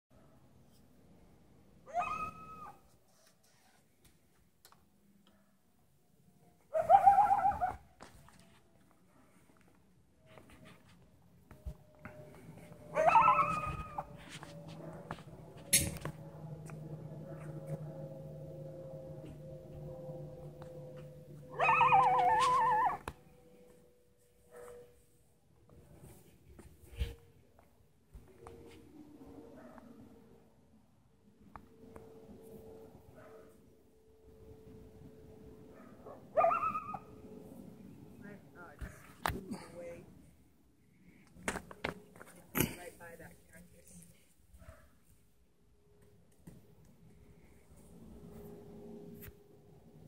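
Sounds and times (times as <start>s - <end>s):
coyote howling: 1.9s - 2.8s, 6.7s - 7.8s, 12.9s - 14.1s, 21.5s - 23.2s, 36.4s - 37.1s.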